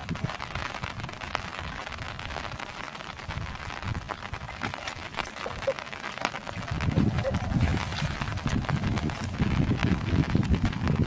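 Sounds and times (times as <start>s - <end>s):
splashing in muddy water: 2.5s - 11.0s
small sharp splashes: 4.1s - 9.5s.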